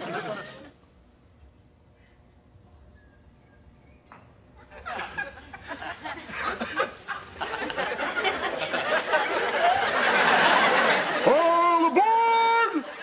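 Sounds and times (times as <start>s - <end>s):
audience laughter: 0.0s - 0.8s, 4.6s - 11.6s.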